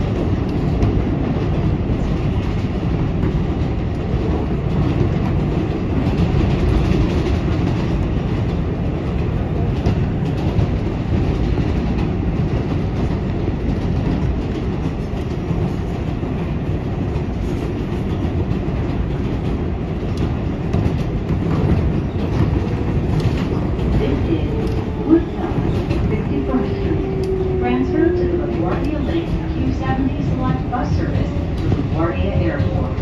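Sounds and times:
train wheels rumbling on rail: 0:00.0 - 0:33.0
faint clicks: 0:27.1 - 0:27.4.

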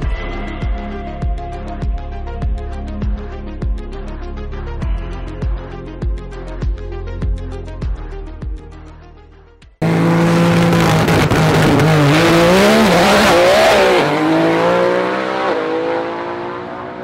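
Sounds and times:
music: 0:00.0 - 0:09.8
race car engine revving: 0:09.8 - 0:17.0.

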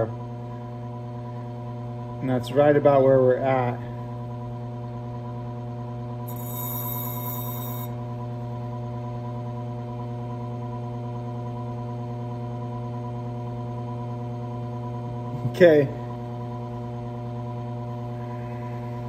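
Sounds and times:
grinder motor humming: 0:06.3 - 0:08.0.

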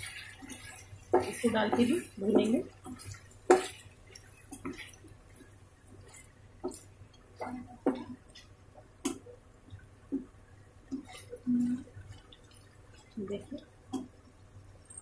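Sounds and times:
wooden spatula scraping a pan: 0:00.0 - 0:08.4.

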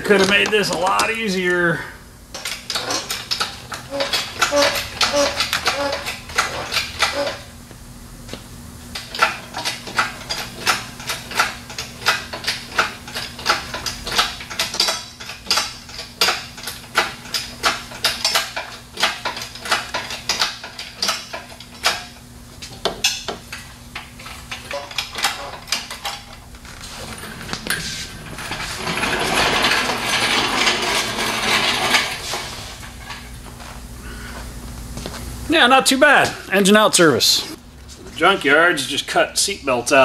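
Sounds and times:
metallic clinking and clanking: 0:22.8 - 0:33.3.

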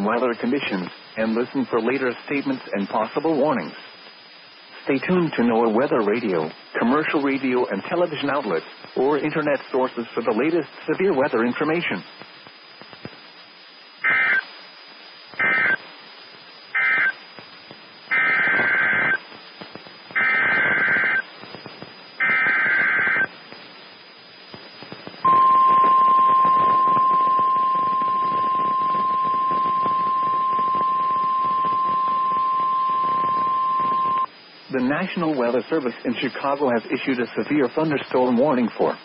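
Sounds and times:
receiver hiss: 0:00.0 - 0:39.0
steady warning alarm tone: 0:18.1 - 0:19.2, 0:20.2 - 0:21.2, 0:22.2 - 0:23.3, 0:25.2 - 0:34.3
warbling digital data tones: 0:20.2 - 0:23.3, 0:25.2 - 0:34.3.

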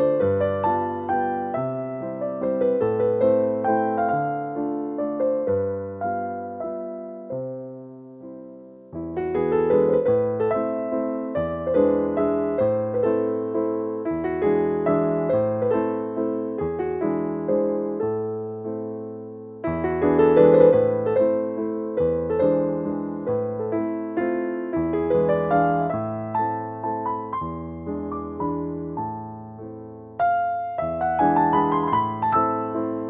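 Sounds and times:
gentle piano music: 0:00.0 - 0:33.0.

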